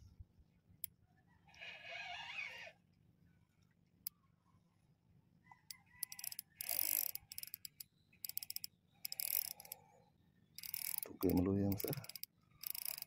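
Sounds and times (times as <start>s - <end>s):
fishing reel ratcheting clicks: 6.0s - 9.8s, 10.6s - 13.0s.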